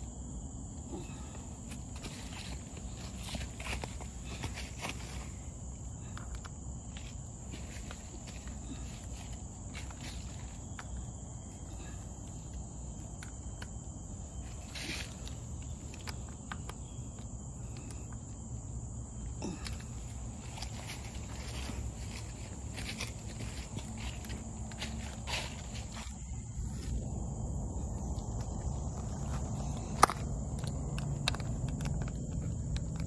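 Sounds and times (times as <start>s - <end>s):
insect drone: 0.0s - 33.0s.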